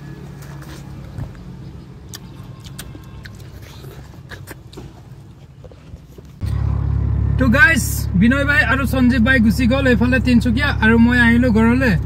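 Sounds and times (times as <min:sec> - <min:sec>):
watermelon being chewed: 0:00.2 - 0:06.6
engine drone inside car cabin: 0:06.4 - 0:12.0
vehicle engine idling: 0:06.4 - 0:12.0.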